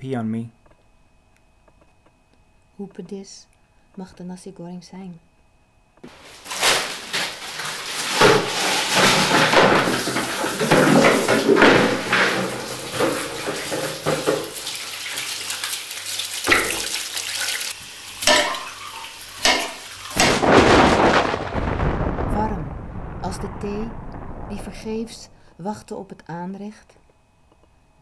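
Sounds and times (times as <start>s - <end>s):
utensils knocking on stone: 7.6s - 14.6s, 18.2s - 20.4s.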